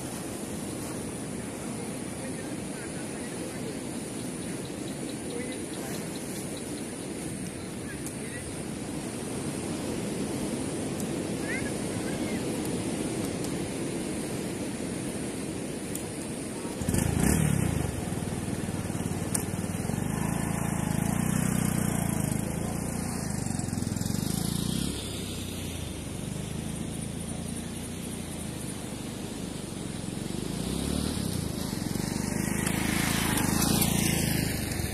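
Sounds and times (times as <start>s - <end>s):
motorcycle engine: 16.7s - 34.9s.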